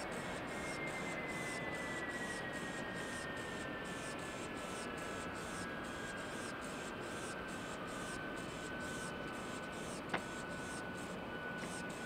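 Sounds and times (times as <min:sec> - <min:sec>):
high jet whine falling in pitch: 0:00.0 - 0:06.6
distant jet engines rushing: 0:00.0 - 0:12.0.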